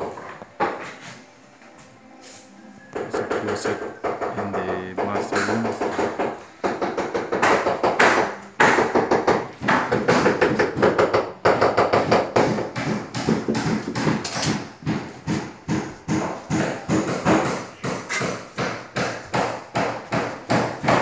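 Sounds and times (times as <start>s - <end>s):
music: 0.0s - 9.4s
hard knocks from building work: 3.0s - 21.0s.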